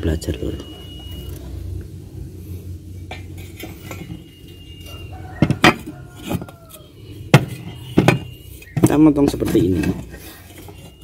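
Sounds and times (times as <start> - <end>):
metal tube ringing: 3.1 - 9.8.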